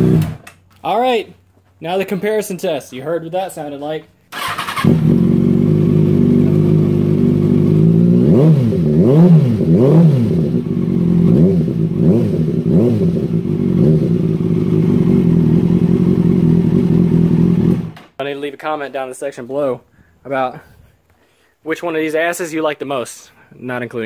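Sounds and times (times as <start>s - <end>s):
motorcycle engine idling and revving: 0.0s - 0.5s, 4.4s - 18.1s.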